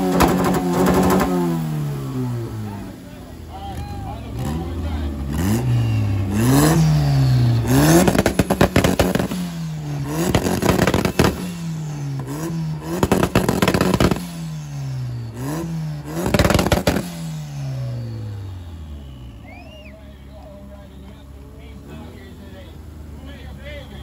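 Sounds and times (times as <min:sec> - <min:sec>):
exhaust crackles and pops: 0:00.0 - 0:01.6, 0:07.6 - 0:14.4, 0:15.4 - 0:17.3
car engine revving: 0:00.0 - 0:24.0.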